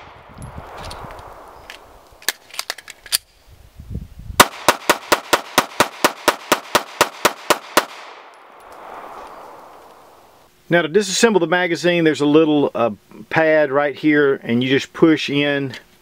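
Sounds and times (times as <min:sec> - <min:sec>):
gunshot echo: 0:00.0 - 0:02.0, 0:04.4 - 0:10.2
pistol shots: 0:04.4 - 0:10.0.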